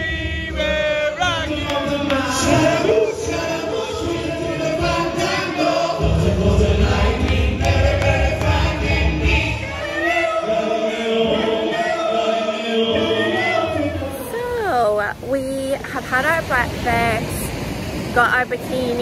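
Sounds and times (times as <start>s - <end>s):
group singing in harmony: 0.0s - 15.2s.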